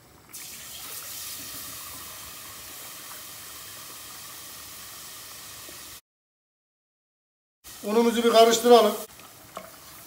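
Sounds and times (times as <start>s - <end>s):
milk pouring into a pot: 0.3s - 5.9s.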